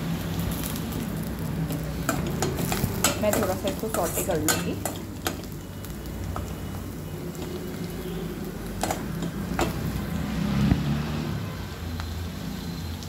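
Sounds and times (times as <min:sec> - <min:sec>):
faint sizzle of frying: 0:00.0 - 0:13.0
spoon stirring and scraping pan: 0:01.6 - 0:10.2.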